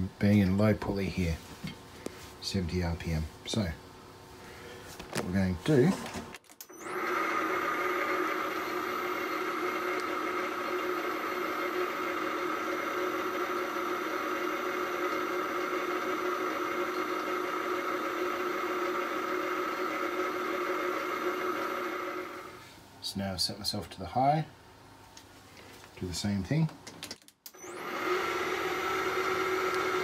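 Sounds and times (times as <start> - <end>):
lathe motor whirring: 6.7 - 22.6, 27.5 - 30.0
high steady whine: 6.7 - 22.7.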